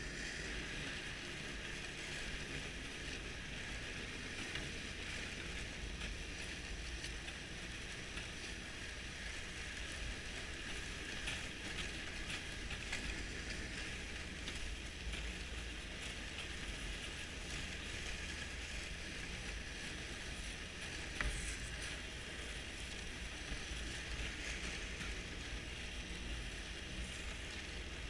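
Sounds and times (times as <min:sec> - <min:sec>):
snowmobile engine and track noise: 0:00.0 - 0:28.0.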